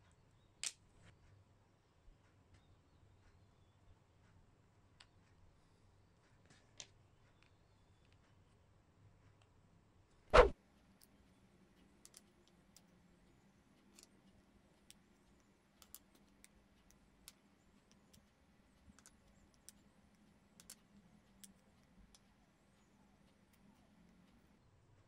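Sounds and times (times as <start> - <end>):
magnetic balls clicking: 11.8 - 24.6.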